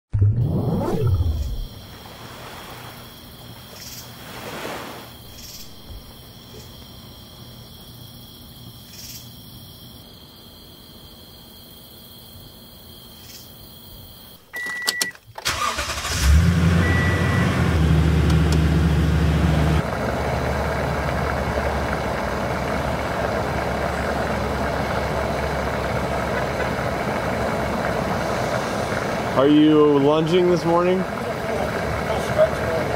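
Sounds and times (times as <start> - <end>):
truck engine starting and idling: 14.6 - 32.9
short beep: 16.8 - 17.6.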